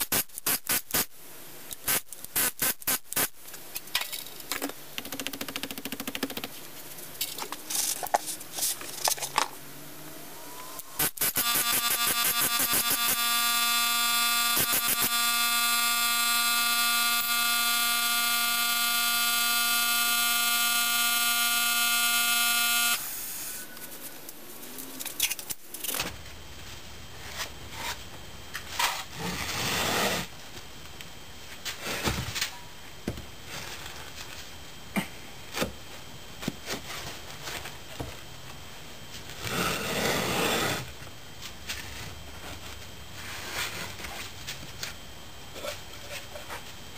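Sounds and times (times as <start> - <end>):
air hammer buzzing: 0.0 - 1.1, 1.8 - 3.3, 10.6 - 23.9.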